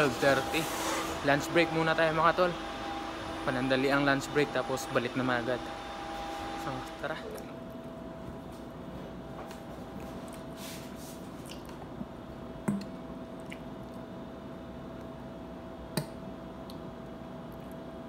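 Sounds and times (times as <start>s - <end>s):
background hum: 4.4s - 18.0s
wet eating sounds: 9.9s - 12.1s, 12.7s - 14.1s.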